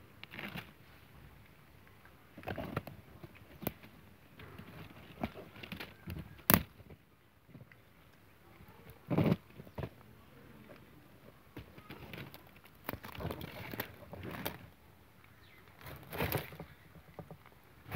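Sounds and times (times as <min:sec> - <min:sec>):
rustling in dry leaves: 0:08.6 - 0:14.8, 0:15.4 - 0:17.9.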